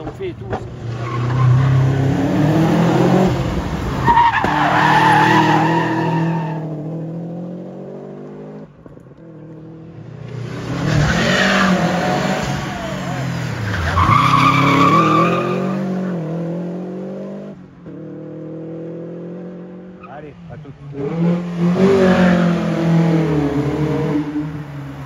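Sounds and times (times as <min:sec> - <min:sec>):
car engine revving hard: 0:00.7 - 0:08.7, 0:09.7 - 0:20.0, 0:20.9 - 0:25.0
tyres squealing: 0:04.0 - 0:06.6, 0:10.9 - 0:15.8.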